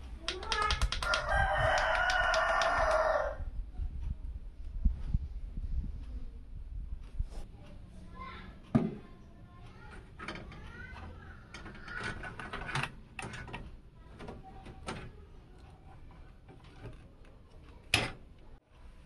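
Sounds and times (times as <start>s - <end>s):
sharp clicks: 0.2s - 3.0s
cables rustling and knocking: 8.6s - 18.6s.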